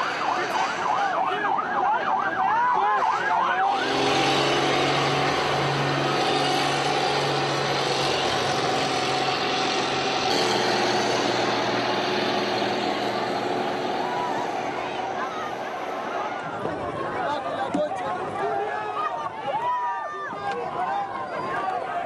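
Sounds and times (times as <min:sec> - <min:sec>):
siren yelping: 0:00.0 - 0:04.5
loud street din: 0:00.0 - 0:22.0
low engine hum: 0:03.8 - 0:18.4.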